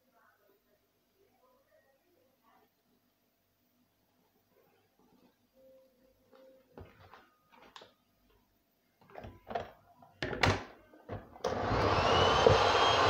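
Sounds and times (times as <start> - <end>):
electric hand mixer whining: 11.4 - 13.0.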